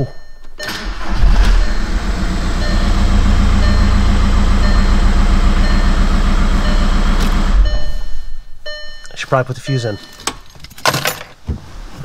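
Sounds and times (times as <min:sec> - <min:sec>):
door-open warning chime: 0:00.0 - 0:10.4
car starter cranking engine: 0:00.6 - 0:08.0.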